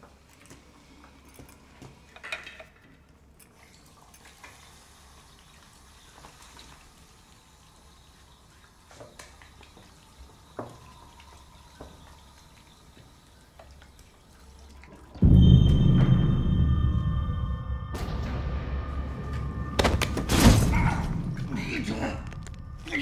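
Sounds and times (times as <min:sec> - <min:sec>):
small clinks at a washbasin: 0:00.0 - 0:04.7
water dripping: 0:00.0 - 0:17.9, 0:19.1 - 0:23.0
low steady hum: 0:09.9 - 0:23.0.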